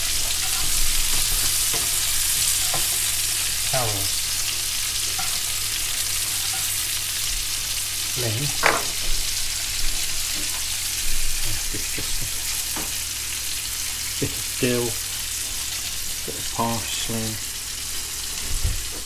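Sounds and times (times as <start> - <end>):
food sizzling in oil: 0.0 - 19.0
utensil knocking on dish: 8.6 - 9.0.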